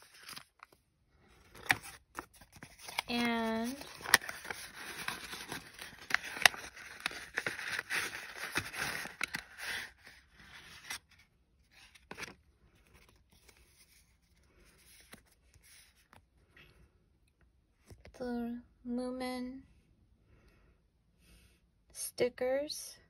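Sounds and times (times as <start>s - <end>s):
paper envelope rustling: 0.0s - 16.3s.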